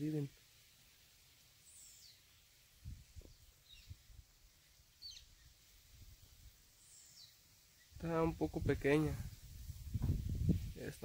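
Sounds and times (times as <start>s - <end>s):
bird chirping: 1.6s - 5.7s, 6.7s - 8.0s.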